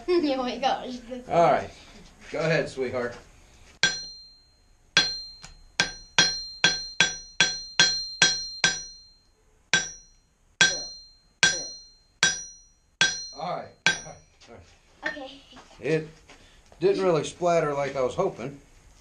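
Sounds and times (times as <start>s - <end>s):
hammer ringing on steel anvil: 3.8s - 14.3s.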